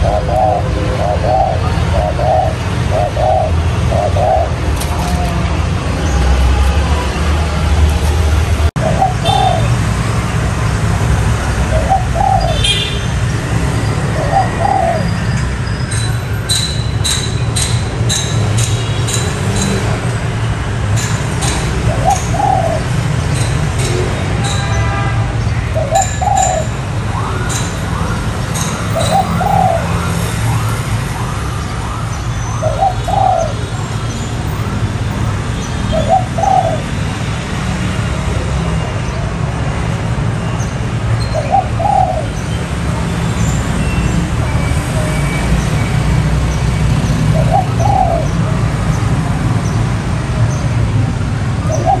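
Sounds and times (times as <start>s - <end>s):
dove cooing: 0.0s - 5.6s, 8.8s - 9.8s, 11.6s - 12.8s, 14.0s - 15.2s, 21.4s - 23.1s, 25.8s - 26.7s, 28.6s - 30.1s, 32.6s - 33.7s, 35.9s - 37.0s, 41.4s - 42.5s, 47.3s - 48.4s, 51.7s - 52.0s.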